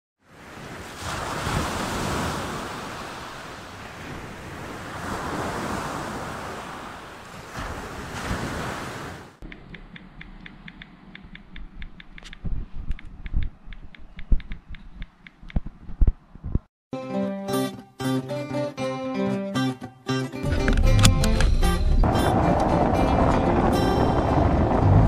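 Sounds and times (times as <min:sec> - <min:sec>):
waves washing on a sandy beach: 0:00.2 - 0:09.4
smartphone keyboard typing ticks: 0:09.4 - 0:16.6
wind on the microphone: 0:12.3 - 0:16.7.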